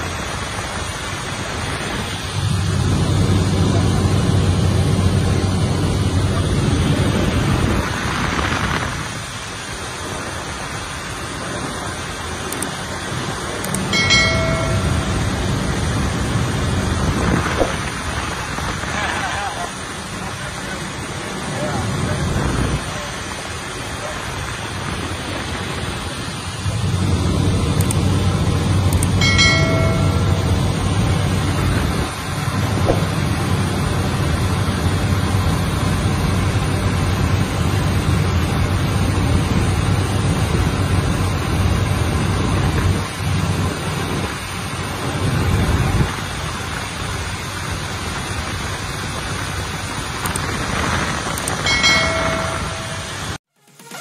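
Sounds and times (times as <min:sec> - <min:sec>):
light aircraft engine cabin noise: 0:00.0 - 0:54.0
short electronic chime: 0:14.0 - 0:15.6, 0:29.2 - 0:31.1, 0:51.7 - 0:54.0.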